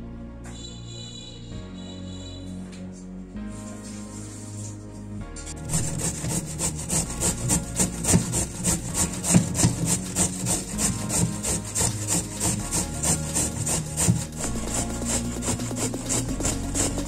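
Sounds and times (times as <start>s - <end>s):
carrot grating on grater: 5.6s - 17.0s.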